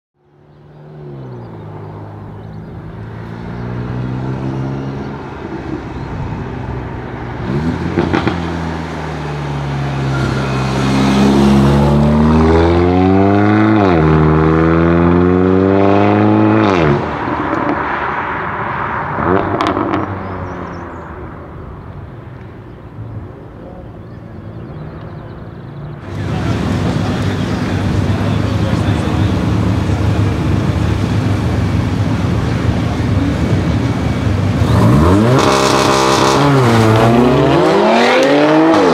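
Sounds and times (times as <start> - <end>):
car engine revving by: 7.3 - 18.0, 26.0 - 38.9.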